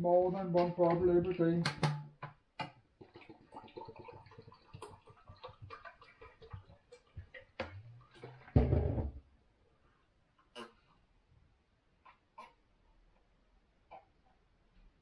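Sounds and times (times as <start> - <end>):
water pouring into a glass: 3.0 - 8.7
bottle knocking on counter: 8.6 - 9.1.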